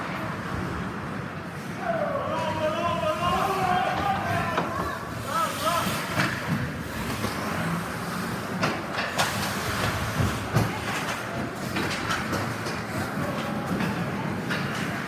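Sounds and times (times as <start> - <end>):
hockey sticks and puck clacking: 8.4 - 15.0.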